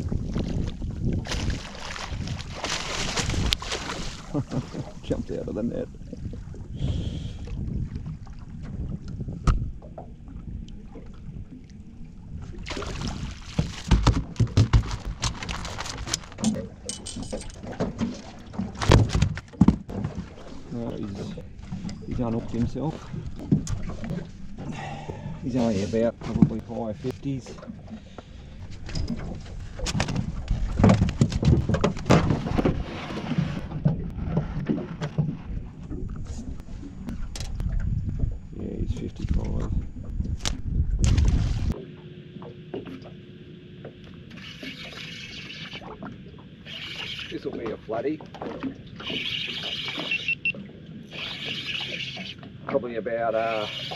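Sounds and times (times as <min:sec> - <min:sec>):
wind rumble on microphone: 0:00.0 - 0:15.5, 0:20.9 - 0:41.8
fish flapping and thumping in boat: 0:00.1 - 0:04.9, 0:12.5 - 0:25.2, 0:28.7 - 0:39.7, 0:40.3 - 0:43.2
knocks and clatters: 0:13.6 - 0:20.2.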